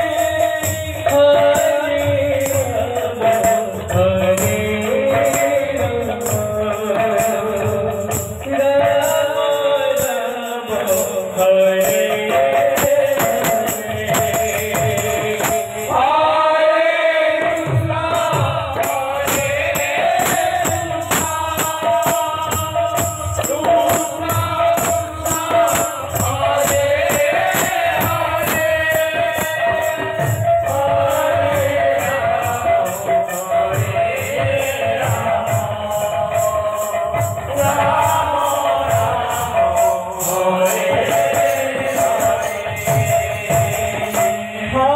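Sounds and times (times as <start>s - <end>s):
jingling metal percussion: 0.0s - 16.5s, 17.4s - 44.9s
devotional singing: 0.0s - 44.9s
barrel drum beat: 11.9s - 16.2s, 17.6s - 44.9s.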